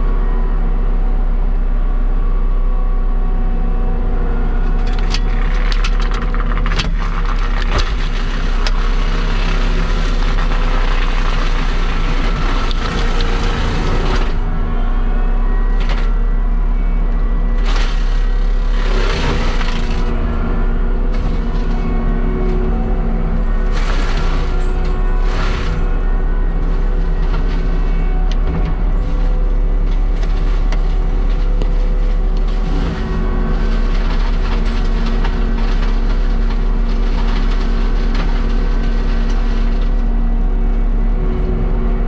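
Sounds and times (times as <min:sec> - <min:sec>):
diesel engine under load: 0:00.0 - 0:42.0
wood cracking and snapping: 0:04.7 - 0:14.4, 0:17.6 - 0:20.2, 0:26.6 - 0:40.1.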